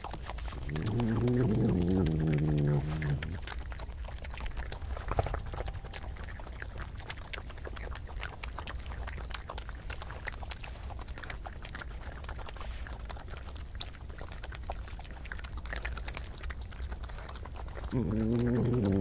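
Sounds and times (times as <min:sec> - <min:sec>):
badger growling: 0:00.0 - 0:03.8, 0:17.8 - 0:19.0
badgers chewing food: 0:00.0 - 0:19.0.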